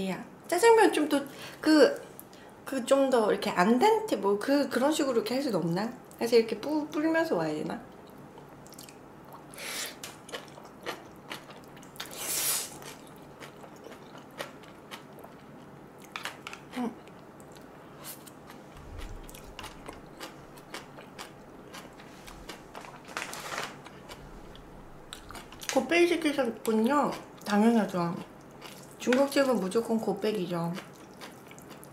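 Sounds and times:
wet chewing and mouth clicks: 0:08.0 - 0:23.2, 0:23.8 - 0:25.8, 0:28.2 - 0:29.5, 0:30.7 - 0:31.9
slurping noodles: 0:12.0 - 0:12.8.

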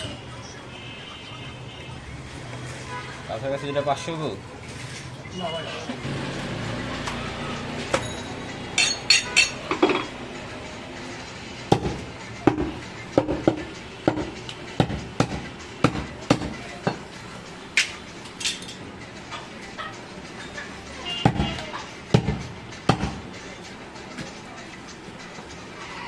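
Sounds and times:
chopper chopping meat on wood: 0:11.7 - 0:16.6, 0:22.2 - 0:23.2.

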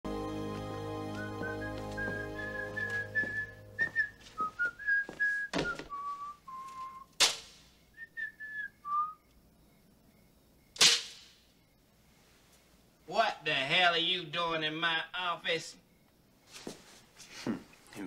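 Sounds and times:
person whistling a slow tune: 0:01.2 - 0:07.1, 0:08.0 - 0:09.3.

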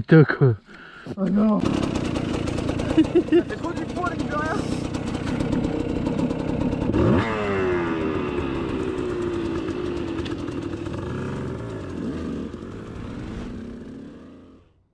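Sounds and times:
dirt bike engine revving: 0:01.3 - 0:14.8.

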